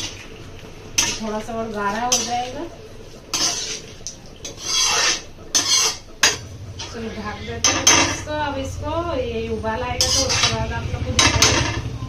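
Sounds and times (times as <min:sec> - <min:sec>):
metal spoon scraping a pot: 0:01.0 - 0:01.2, 0:02.1 - 0:02.5, 0:03.3 - 0:08.3, 0:10.0 - 0:11.8.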